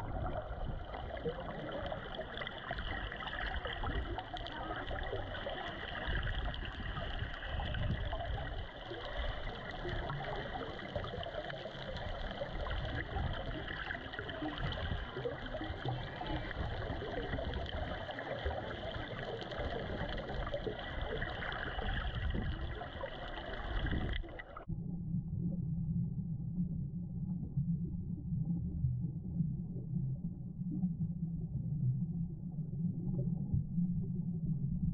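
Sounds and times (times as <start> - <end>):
underwater bubbling hiss: 0.0 - 24.5
muffled low rumble: 0.0 - 34.9.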